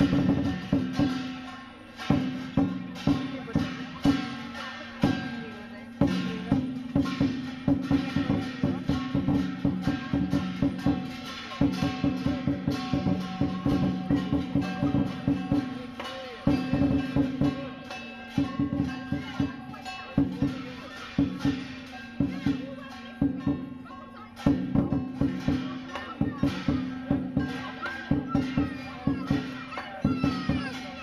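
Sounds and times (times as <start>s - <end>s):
cymbals ringing: 0.0s - 31.0s.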